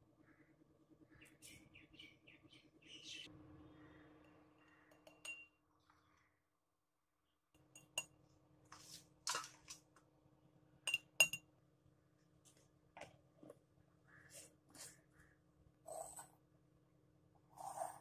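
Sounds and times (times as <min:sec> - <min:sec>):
soft scrape of powder: 0:17.5 - 0:18.0.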